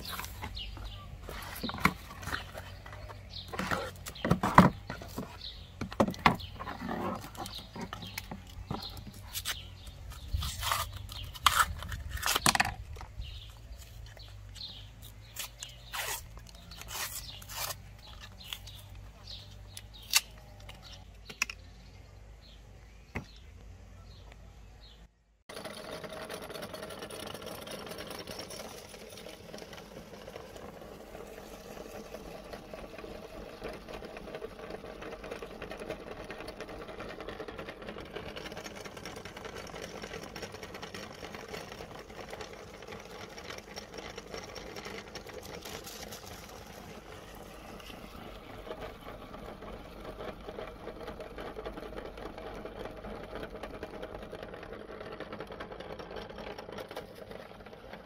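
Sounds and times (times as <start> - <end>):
meat grinder clattering: 25.5 - 58.0.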